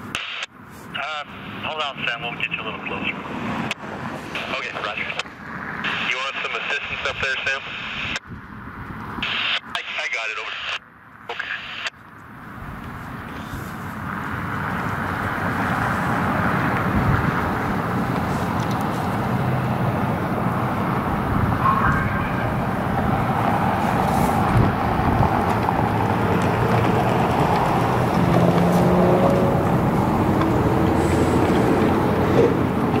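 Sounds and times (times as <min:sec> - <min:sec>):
outdoor noise: 0:00.0 - 0:33.0
diesel locomotive rumbling: 0:12.6 - 0:33.0.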